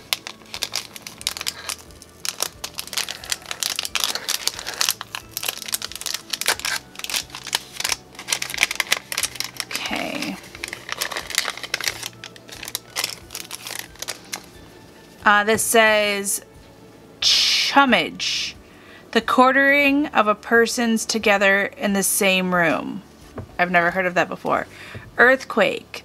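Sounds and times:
paper envelope crinkling: 0.0s - 14.6s.

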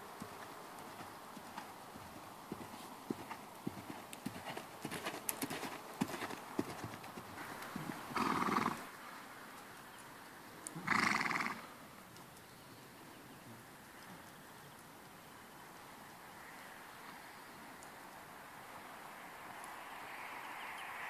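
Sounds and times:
hoofbeats on sand: 0.0s - 8.8s
horse snorting: 7.8s - 8.8s, 10.8s - 11.6s.

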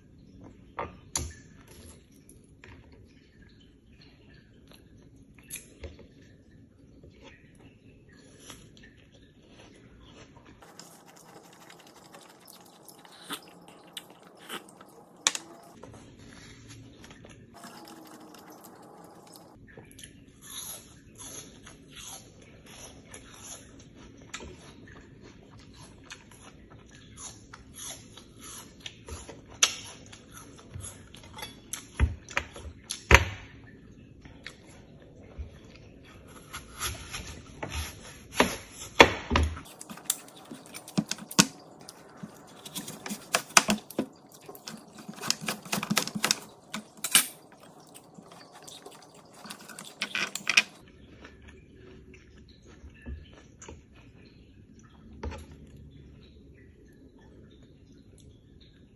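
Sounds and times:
crunchy apple chewing: 9.5s - 19.6s, 39.6s - 53.7s.

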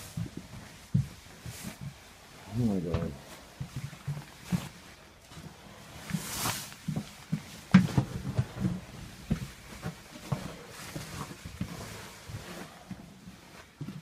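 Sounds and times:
footsteps on wooden floor: 0.0s - 14.0s
rustling and knocking of phone: 6.8s - 11.7s.

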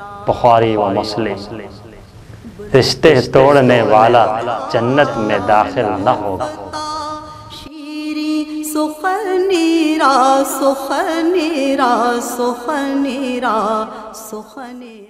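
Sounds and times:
person singing a chant: 3.4s - 15.0s.

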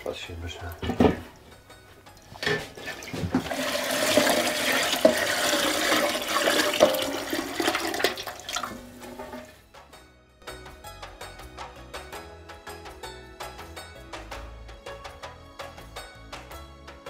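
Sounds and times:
liquid splashing into a pot: 2.2s - 9.6s.

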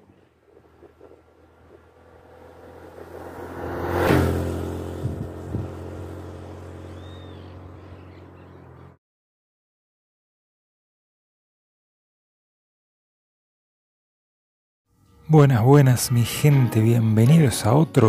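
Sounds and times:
motorcycle passing by: 0.5s - 9.0s.

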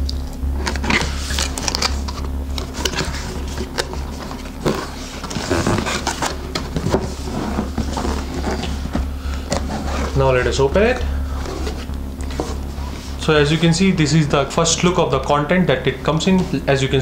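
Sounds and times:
steady low hum: 0.0s - 17.0s
cardboard box handling: 0.6s - 10.2s, 10.8s - 13.2s.

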